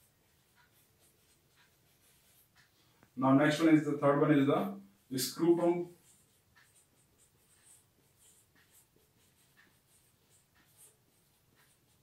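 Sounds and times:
marker squeaking on whiteboard: 0.2s - 2.8s, 5.9s - 12.0s.

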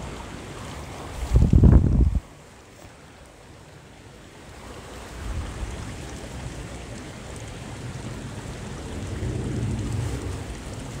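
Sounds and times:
wind buffeting microphone: 0.0s - 2.4s, 4.9s - 11.0s
small stream rushing: 0.0s - 11.0s.

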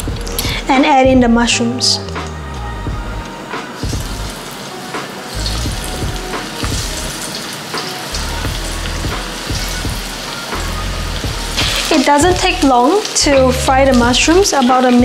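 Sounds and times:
food sizzling in hot oil: 3.4s - 15.0s.

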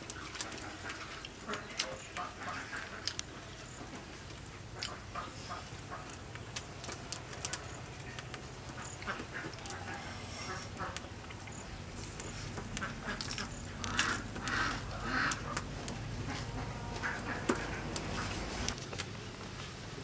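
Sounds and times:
person chewing with mouth clicks: 4.8s - 10.2s.

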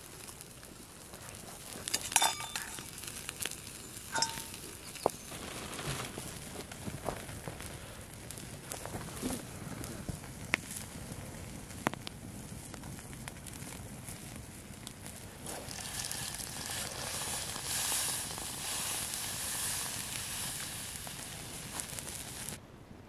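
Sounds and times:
fire popping: 0.0s - 22.6s
wood fire crackling: 0.0s - 22.6s
beer pouring and fizzing: 15.4s - 21.2s.

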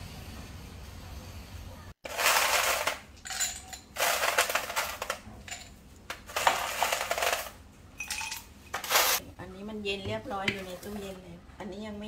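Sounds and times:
glassware and dishes clinking: 3.2s - 4.0s, 8.0s - 8.9s.

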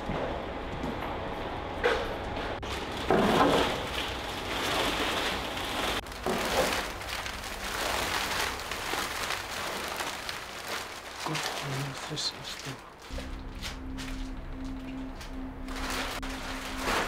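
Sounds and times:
plastic sheeting crinkling: 2.6s - 17.0s.

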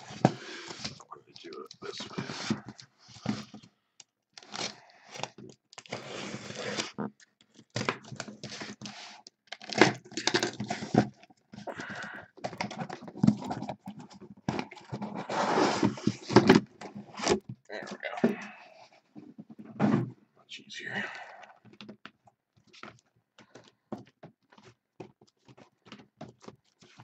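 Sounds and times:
paper and cardboard tearing: 4.4s - 7.0s, 14.9s - 16.5s
knocks and scrapes: 12.4s - 20.2s.

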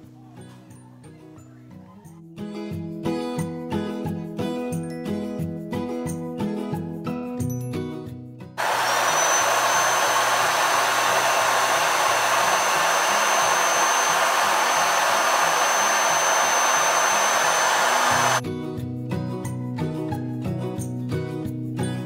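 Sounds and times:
electric air pump running: 8.6s - 18.4s.

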